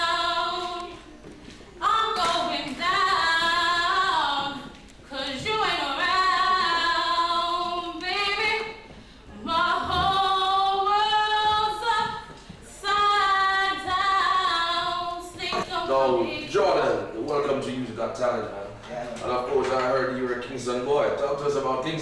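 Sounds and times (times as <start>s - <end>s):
woman singing a cappella: 0.0s - 1.0s, 1.8s - 16.5s.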